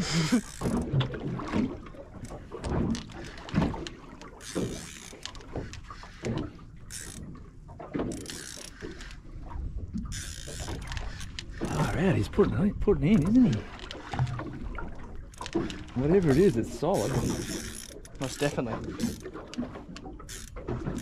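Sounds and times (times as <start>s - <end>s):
reel drag giving line: 0.0s - 21.0s
fishing reel clicking: 0.3s - 0.8s, 4.3s - 5.8s, 6.9s - 7.3s, 8.1s - 9.2s, 10.1s - 11.8s, 15.3s - 21.0s.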